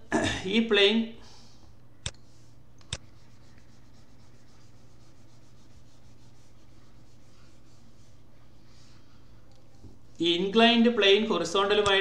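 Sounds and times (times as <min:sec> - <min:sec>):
faint low hum with hiss: 0:00.0 - 0:12.0.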